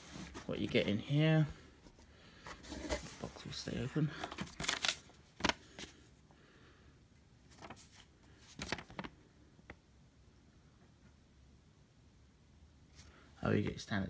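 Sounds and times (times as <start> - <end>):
paper leaflet rustling: 4.2 - 6.0, 7.5 - 9.2.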